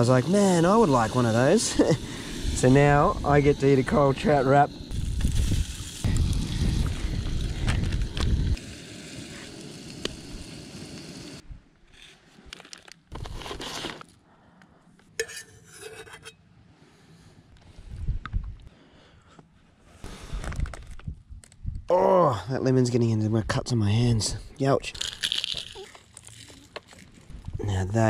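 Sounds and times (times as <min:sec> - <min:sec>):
fish sizzling in a pan: 0:00.0 - 0:11.4
low rumble of stove: 0:00.0 - 0:11.4.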